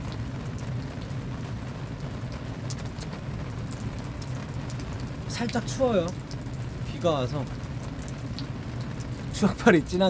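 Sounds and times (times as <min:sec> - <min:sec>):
sharp raindrop ticks: 0:00.0 - 0:10.0
steady rain hiss: 0:00.0 - 0:10.0.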